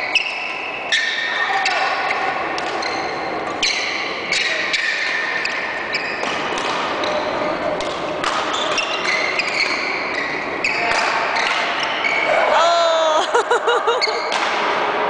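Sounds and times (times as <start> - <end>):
rackets hitting shuttlecock: 2.6 - 3.6, 6.2 - 12.0, 14.2 - 15.0.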